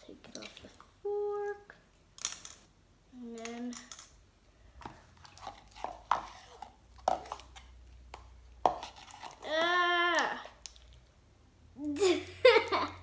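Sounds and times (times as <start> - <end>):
child's voice rising and falling: 9.4 - 10.6, 11.8 - 12.4.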